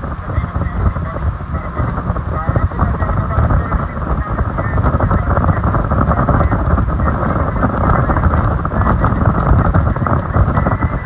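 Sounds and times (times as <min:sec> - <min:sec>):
hull running on water: 0:00.0 - 0:11.0
speedboat engine: 0:00.0 - 0:11.0
wind buffeting microphone: 0:00.0 - 0:11.0.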